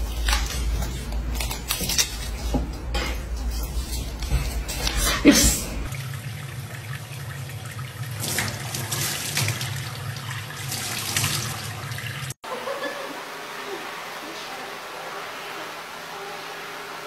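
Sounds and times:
tap water running into metal sink: 0:05.9 - 0:12.4.

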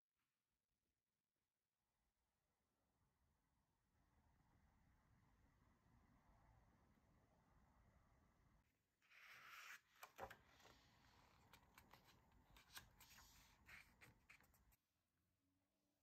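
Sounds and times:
paper pages rustling: 0:09.1 - 0:14.8.

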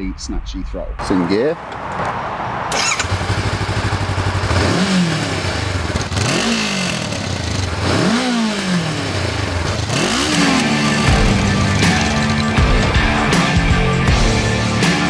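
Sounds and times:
motorcycle engine revving: 0:02.7 - 0:13.6
motorcycle engine idling: 0:02.8 - 0:12.9.

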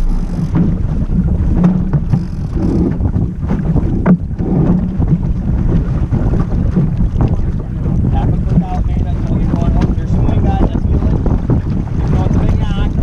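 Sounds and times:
sharp knocks: 0:00.0 - 0:00.9
water rushing along hull: 0:00.0 - 0:13.0
wind buffeting microphone: 0:00.0 - 0:13.0.

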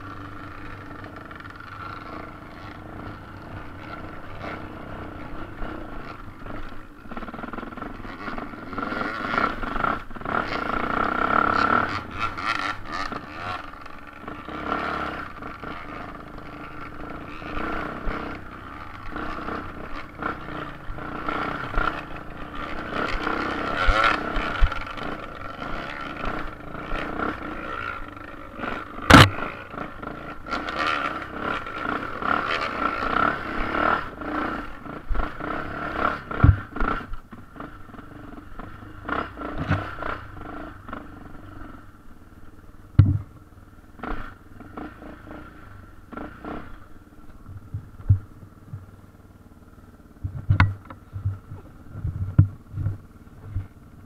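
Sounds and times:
motorcycle engine at low speed: 0:00.0 - 0:54.0
bike striking stones: 0:29.1 - 0:29.4.

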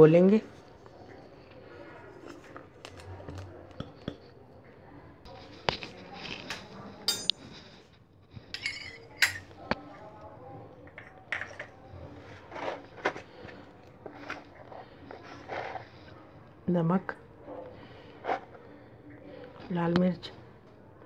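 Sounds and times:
kitchenware clinking and knocking: 0:03.3 - 0:04.3, 0:07.0 - 0:07.6, 0:08.5 - 0:09.6, 0:10.9 - 0:11.8.

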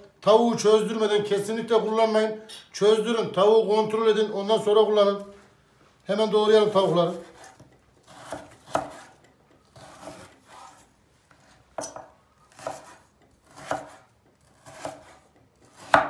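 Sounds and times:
knife slicing on wooden board: 0:07.2 - 0:16.0.

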